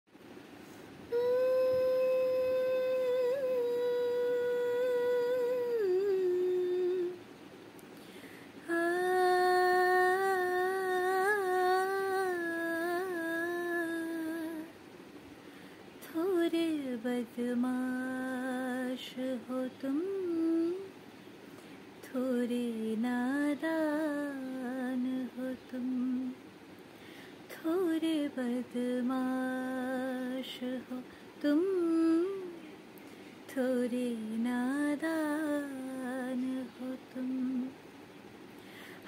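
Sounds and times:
woman humming a melody: 1.1 - 7.2, 8.6 - 14.8, 16.0 - 20.9, 22.0 - 26.4, 27.5 - 32.7, 33.5 - 37.8.

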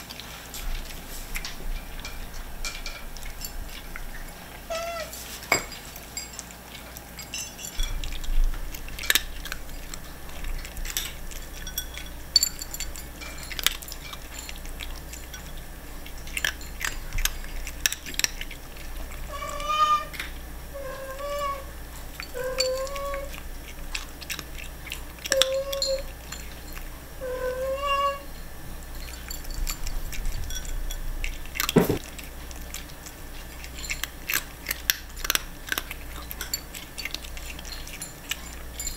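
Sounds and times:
cat crunching kibble: 0.0 - 27.2, 27.9 - 38.9
cat mewing: 4.7 - 5.1, 19.3 - 20.2, 20.8 - 21.7, 22.4 - 23.4, 27.2 - 28.3.

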